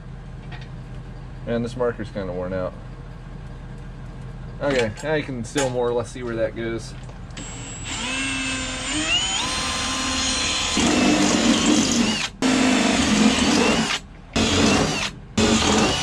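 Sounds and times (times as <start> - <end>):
cordless drill boring into metal: 7.4 - 16.0.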